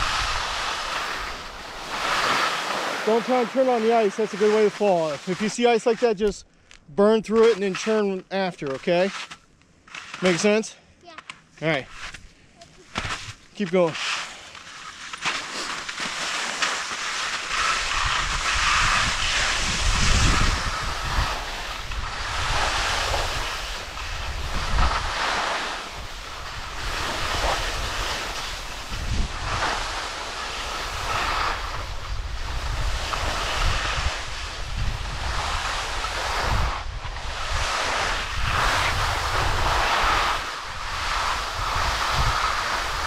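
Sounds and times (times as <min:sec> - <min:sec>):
wind rumbling on microphone: 0:00.0 - 0:02.2, 0:17.6 - 0:25.3, 0:25.9 - 0:43.0
skis scraping over snow: 0:00.0 - 0:06.4, 0:07.0 - 0:10.7, 0:11.6 - 0:43.0.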